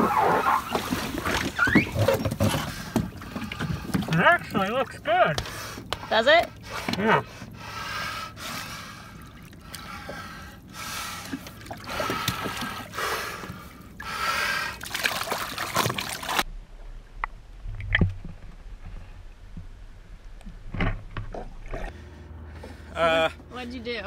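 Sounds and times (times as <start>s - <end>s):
water splashing: 0.0s - 5.4s, 9.1s - 18.6s
heavy breaths through snorkel: 5.4s - 14.9s
low rumble: 16.4s - 24.0s.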